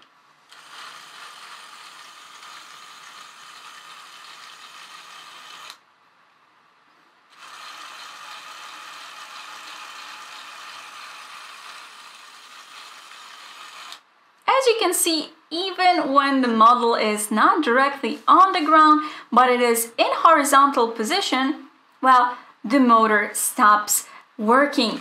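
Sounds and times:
toy motor whirring: 0:00.5 - 0:05.8, 0:07.3 - 0:14.0.

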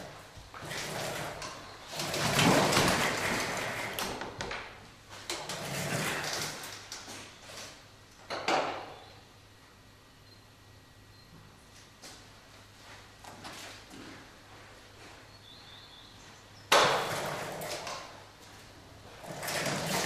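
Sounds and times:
rubber wheels scrubbing: 0:00.6 - 0:04.0, 0:19.2 - 0:20.0.

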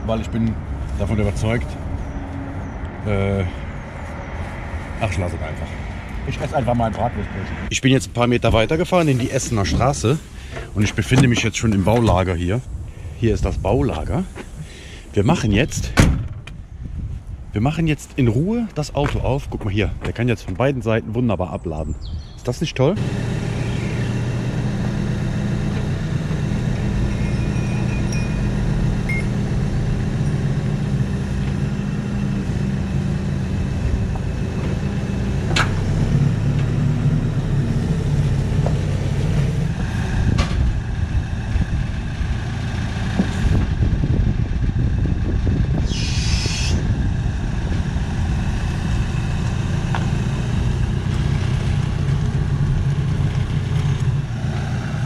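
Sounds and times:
forklift diesel engine running: 0:23.0 - 0:55.0
hissing air burst: 0:45.8 - 0:47.0.

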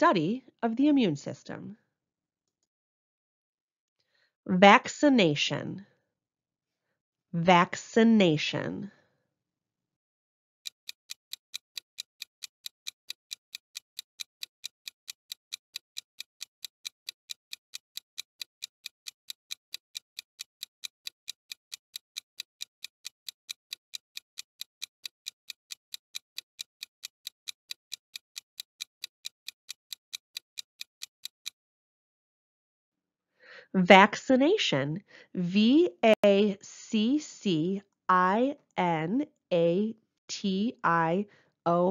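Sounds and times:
clock ticking: 0:10.7 - 0:31.6.

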